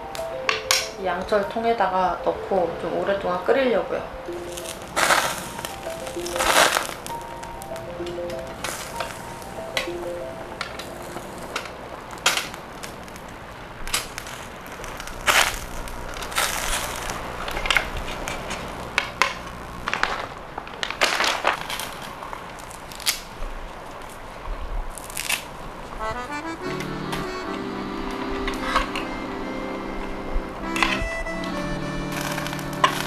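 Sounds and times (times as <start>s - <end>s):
music: 0.0s - 11.7s, 26.0s - 33.0s.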